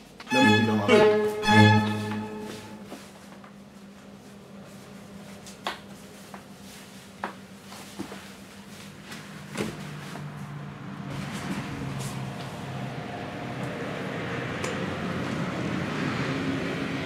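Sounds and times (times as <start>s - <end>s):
knocks and scuffs of people moving: 0.0s - 12.6s.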